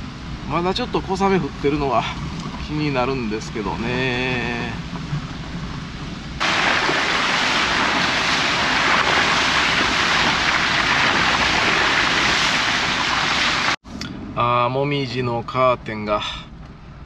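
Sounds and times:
rushing mountain stream: 0:06.4 - 0:13.8.

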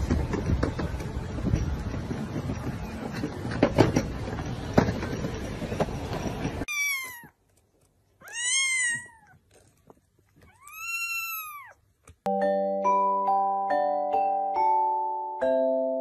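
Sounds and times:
kitten meowing: 0:06.7 - 0:07.4, 0:08.2 - 0:09.4, 0:10.4 - 0:11.8
vibraphone music: 0:12.3 - 0:16.0.

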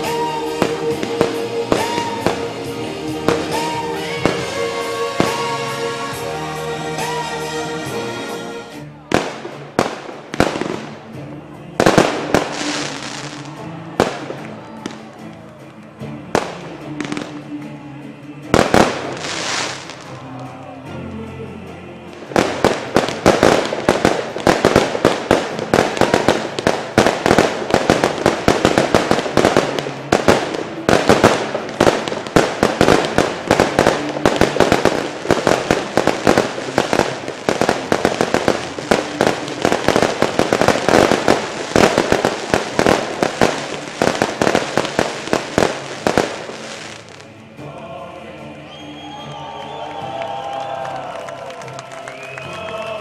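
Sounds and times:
fireworks crackling: 0:00.0 - 0:08.0, 0:09.1 - 0:17.5, 0:18.5 - 0:20.2, 0:22.1 - 0:47.4, 0:50.6 - 0:53.0.

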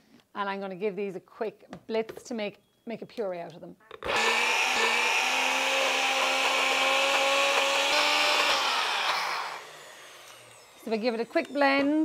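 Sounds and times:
blender motor running: 0:04.0 - 0:11.6.

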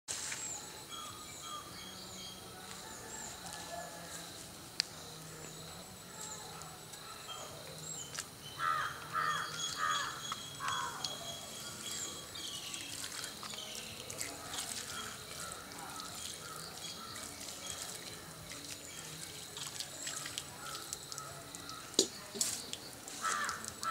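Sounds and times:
small birds chirping: 0:04.8 - 0:23.9
crow cawing: 0:08.6 - 0:11.0, 0:23.2 - 0:23.9
water splashing onto stone: 0:10.3 - 0:23.9.

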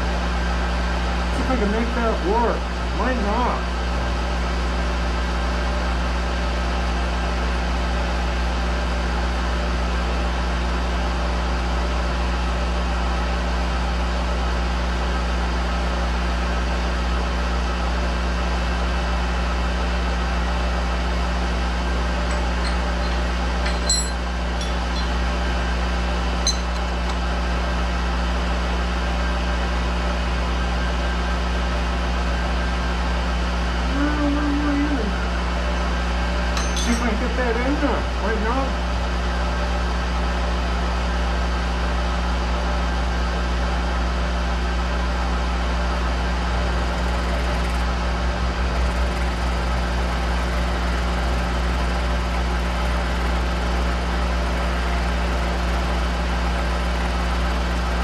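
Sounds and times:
machine spindle motor humming: 0:19.2 - 0:39.0, 0:45.3 - 0:58.0.

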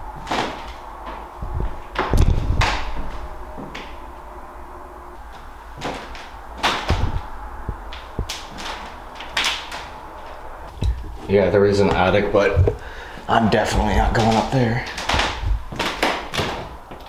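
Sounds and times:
loud crack: 0:00.0 - 0:04.1, 0:05.4 - 0:10.7, 0:14.0 - 0:17.0
heavy low thuds: 0:00.0 - 0:09.2, 0:15.1 - 0:15.8
sharp knocks and creaks: 0:00.1 - 0:04.2, 0:05.3 - 0:11.3.

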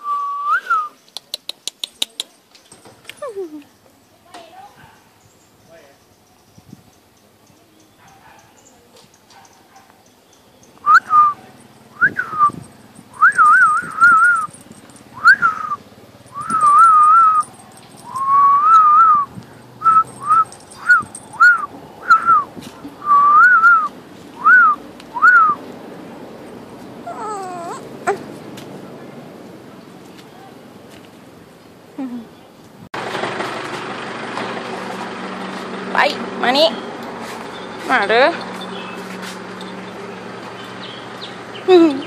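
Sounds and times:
person whistling: 0:00.0 - 0:01.0, 0:10.8 - 0:11.4, 0:12.0 - 0:12.6, 0:13.2 - 0:14.6, 0:15.2 - 0:17.5, 0:18.1 - 0:25.6.

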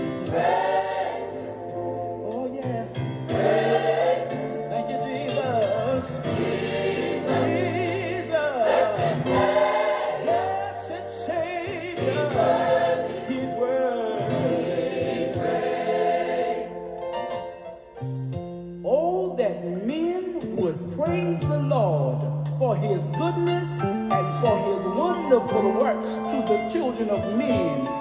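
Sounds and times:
choir singing: 0:00.0 - 0:17.1.

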